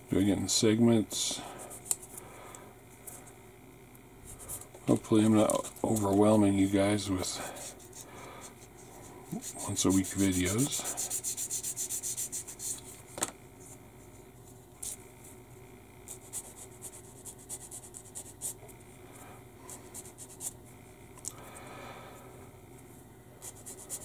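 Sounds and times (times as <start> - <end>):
sanding stick rubbing plastic: 9.4 - 12.8.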